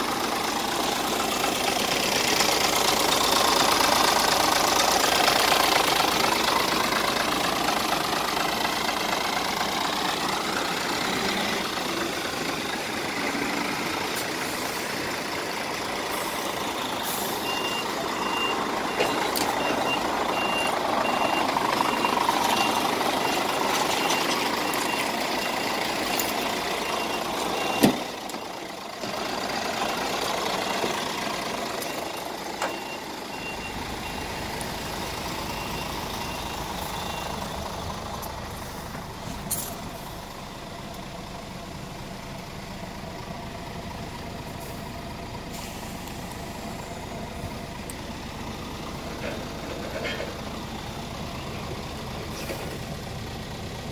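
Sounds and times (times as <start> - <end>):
rushing vehicle noise: 0.0 - 53.9
reversing alarm beeping: 16.2 - 28.6, 31.6 - 37.6.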